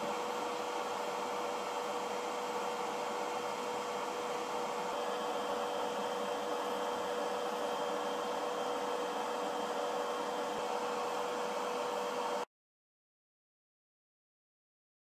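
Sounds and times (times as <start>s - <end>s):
machine whirring hum: 0.0s - 12.5s.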